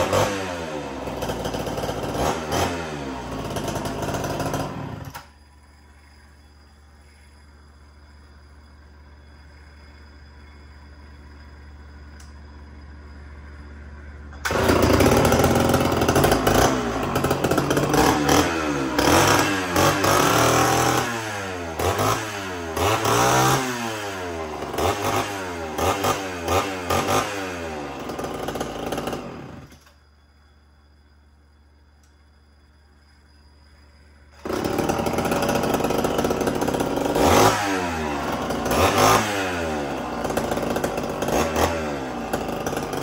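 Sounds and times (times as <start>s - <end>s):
chainsaw revving: 0.0s - 5.3s, 14.4s - 29.9s, 34.3s - 43.0s.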